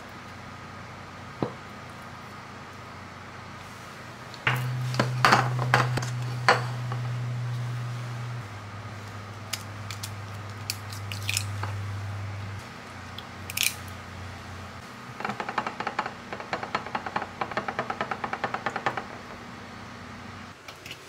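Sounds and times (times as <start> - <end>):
eggs cracking on a bowl: 9.5 - 11.8.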